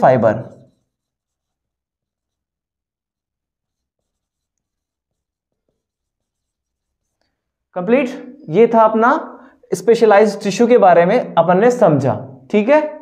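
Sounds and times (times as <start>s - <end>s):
marker writing on whiteboard: 0.0s - 7.6s.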